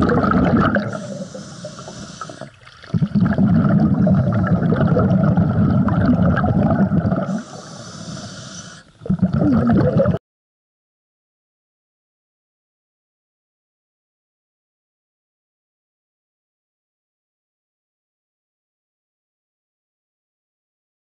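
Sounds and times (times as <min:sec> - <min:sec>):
exhaled bubbles: 0:00.0 - 0:10.2
regulator inhale hiss: 0:00.9 - 0:02.6, 0:07.2 - 0:09.1.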